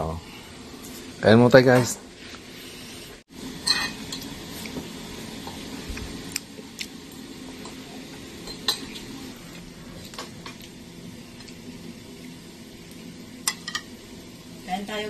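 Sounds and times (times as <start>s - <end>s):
cutlery clinking against plates: 3.6s - 4.3s, 8.4s - 9.1s.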